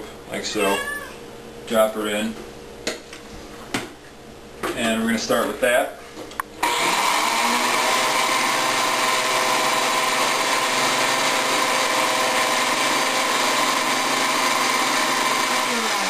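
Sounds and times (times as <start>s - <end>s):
blender motor running: 6.6s - 16.0s.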